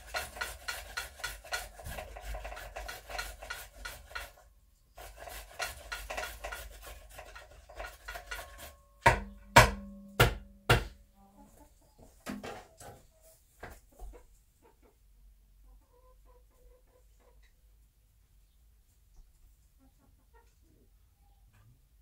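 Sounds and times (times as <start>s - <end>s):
rustling and scratching in straw: 0.0s - 8.8s
sharp knocks on wood: 9.0s - 11.0s.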